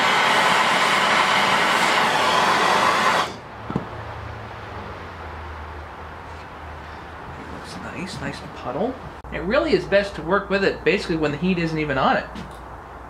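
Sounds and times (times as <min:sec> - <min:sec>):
gas torch flame hissing: 0:00.0 - 0:03.4.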